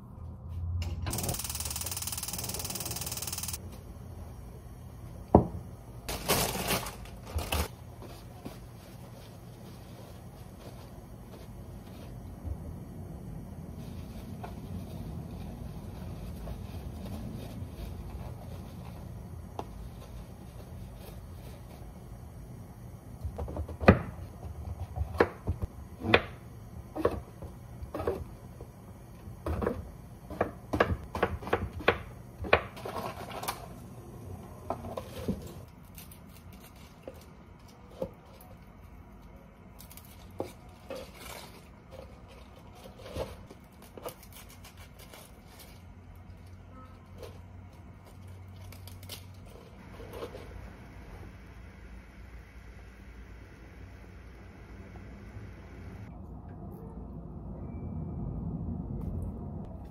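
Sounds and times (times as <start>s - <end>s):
scattered clicks: 1.1s - 3.6s.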